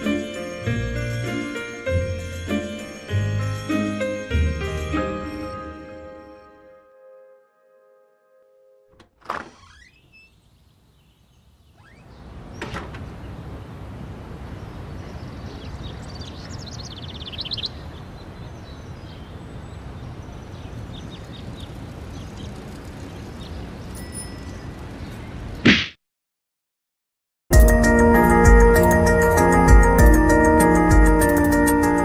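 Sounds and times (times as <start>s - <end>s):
birds chirping: 9.6s - 25.7s
loud thump: 25.6s - 26.0s.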